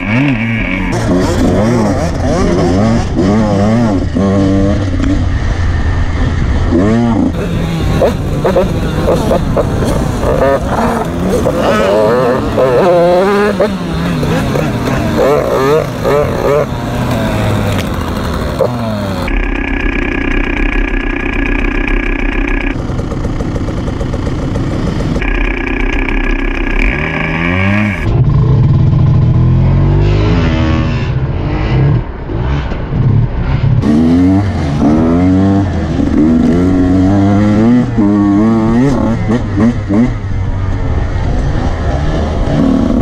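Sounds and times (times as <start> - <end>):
motorcycle engine revving: 0.0 - 43.0.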